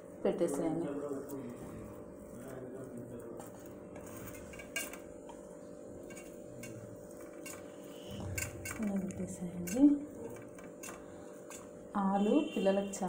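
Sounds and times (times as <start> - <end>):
steady low hum: 0.0 - 13.0
taps and clinks on steel plate: 6.1 - 11.7.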